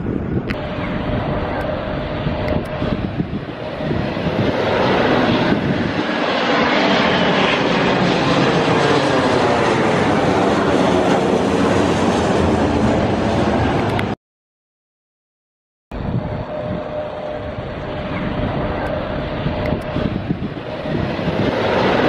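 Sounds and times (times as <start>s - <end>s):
jet airliner passing overhead: 0.0s - 14.2s, 16.0s - 22.0s.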